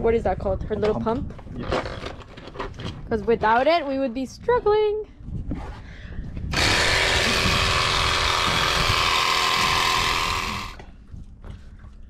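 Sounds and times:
air compressor whining: 6.5s - 10.8s.

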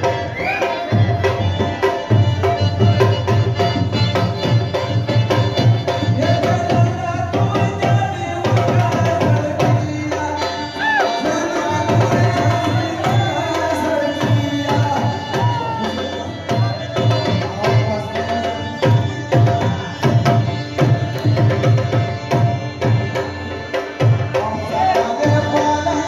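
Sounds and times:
wavering melody: 9.1s - 26.0s.

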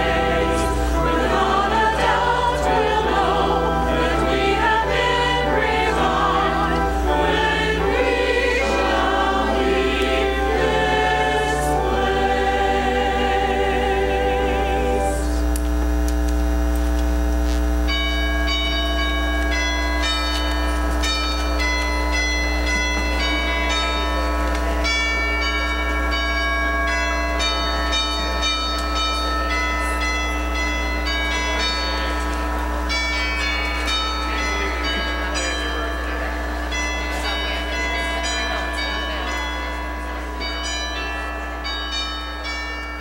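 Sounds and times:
bells ringing notes: 0.0s - 15.4s, 17.7s - 43.0s
steady low hum: 0.0s - 23.1s.

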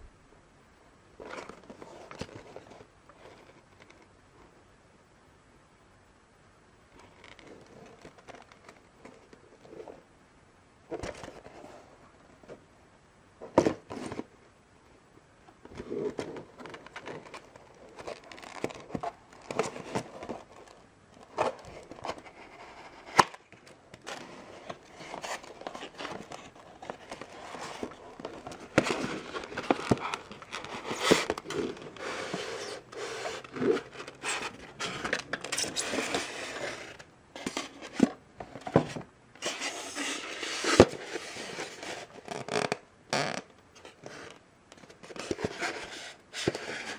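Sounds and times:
cardboard and foam rubbing: 24.1s - 38.0s.

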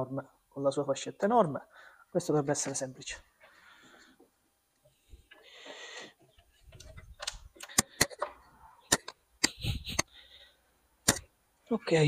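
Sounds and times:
sharp clicks and taps: 6.0s - 10.1s, 11.0s - 11.3s.

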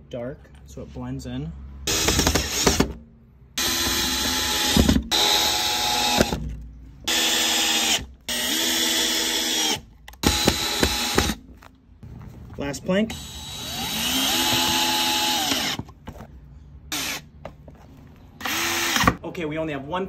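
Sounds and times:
drill motor whining: 3.6s - 6.4s, 7.1s - 11.4s, 13.1s - 15.8s, 18.4s - 19.2s.

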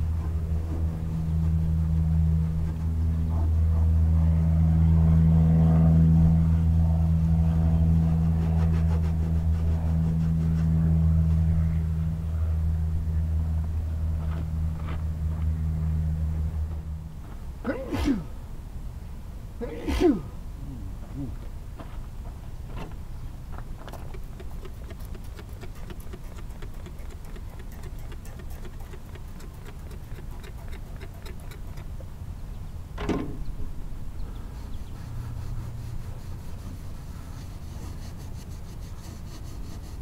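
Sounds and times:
tractor engine running: 23.8s - 32.0s.

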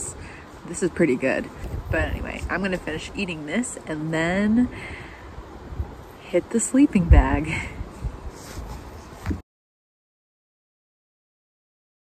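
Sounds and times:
low background noise: 0.0s - 9.4s.

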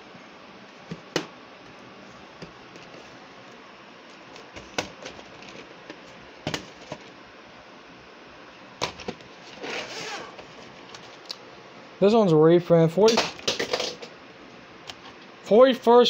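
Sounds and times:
plastic tape cases clicking and knocking: 4.3s - 7.1s, 8.8s - 9.3s
plastic case scraping slide: 8.8s - 11.1s.

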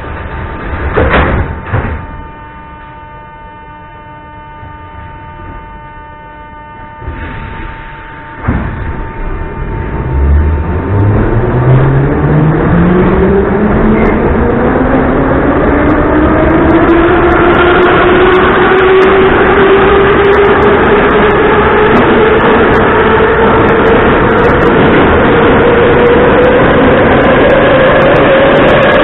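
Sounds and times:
train motors whining: 0.0s - 29.0s
wheels rumbling on rail: 0.0s - 29.0s.

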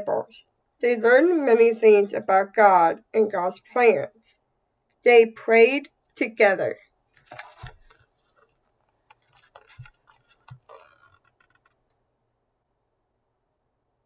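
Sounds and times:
paper pages rustling: 7.1s - 11.8s
soft thumps of book handling: 7.2s - 11.8s.

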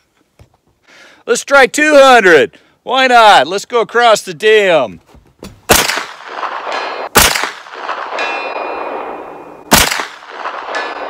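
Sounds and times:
rifle shots with echo: 5.7s - 11.0s.

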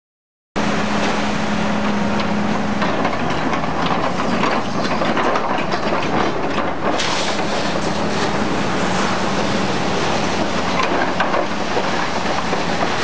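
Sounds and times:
steady hum: 0.6s - 5.0s, 7.4s - 13.0s
machinery running: 0.6s - 13.0s.

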